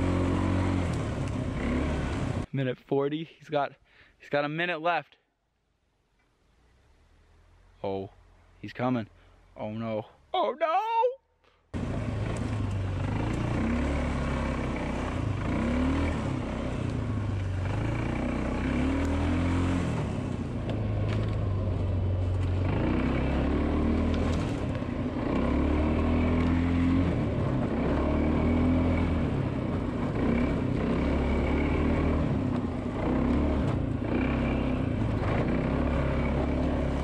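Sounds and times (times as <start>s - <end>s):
quad bike engine revving: 0.0s - 2.5s, 11.8s - 37.0s.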